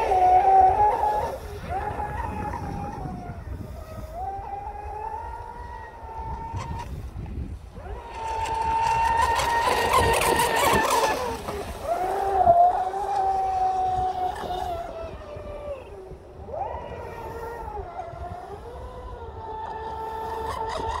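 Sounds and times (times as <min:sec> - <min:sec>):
electric boat motor whine: 0:04.6 - 0:21.0.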